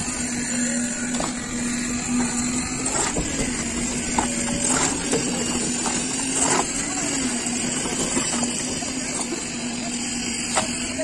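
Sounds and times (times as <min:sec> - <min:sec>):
concrete mixer engine humming: 0:00.0 - 0:11.0
trowels scraping and knocking: 0:02.8 - 0:06.8.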